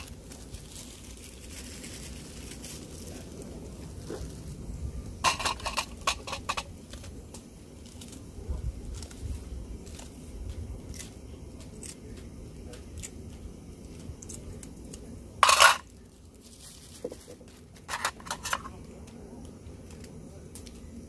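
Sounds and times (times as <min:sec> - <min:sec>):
scissors snipping peppers: 0:10.8 - 0:15.1.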